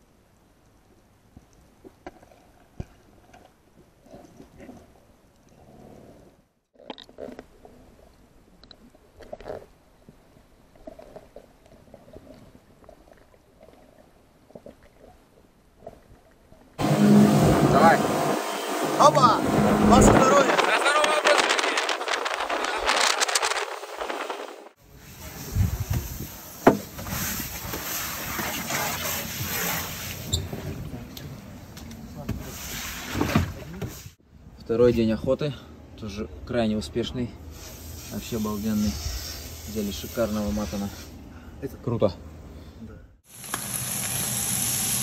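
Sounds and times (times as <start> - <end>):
rough steady hiss: 37.4 - 41.4.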